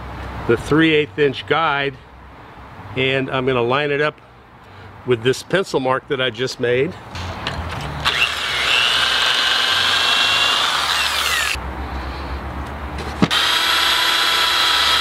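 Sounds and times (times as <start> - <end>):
electric drill whining: 8.0 - 11.6, 13.3 - 15.0.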